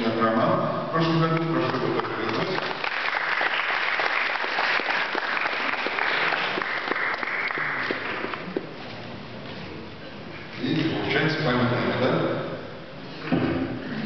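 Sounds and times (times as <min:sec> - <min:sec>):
audience applauding: 0:01.7 - 0:08.6.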